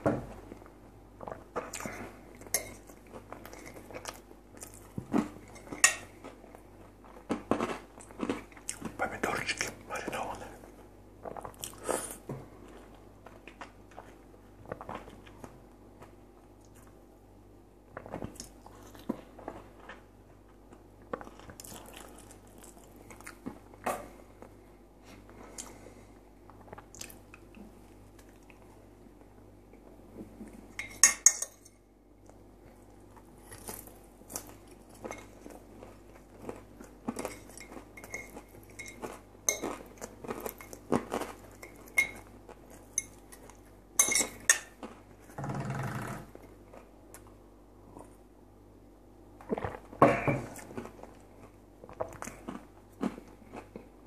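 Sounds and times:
chewing food: 1.2 - 10.5, 17.9 - 24.6, 26.5 - 28.8, 32.2 - 45.4, 49.5 - 54.0.

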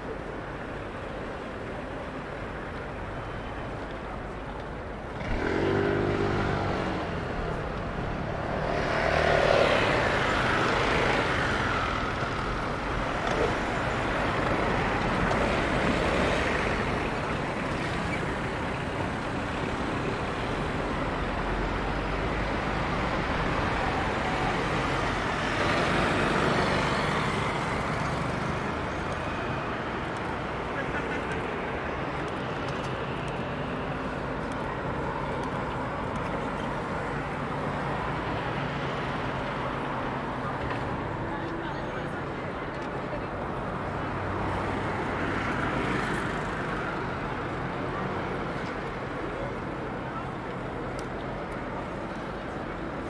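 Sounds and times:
street traffic passing: 0.0 - 53.0
loud engine: 5.2 - 7.3.

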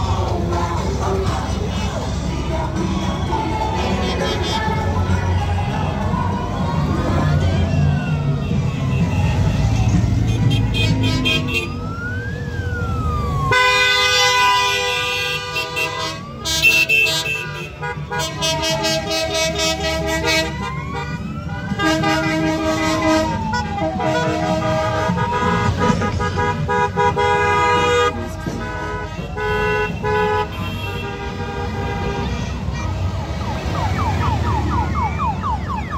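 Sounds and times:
horns tooting: 0.0 - 12.0, 13.4 - 35.9
motorcycle engines rumbling: 0.0 - 35.9
siren wailing: 5.6 - 16.9, 18.2 - 26.0, 33.1 - 35.9.

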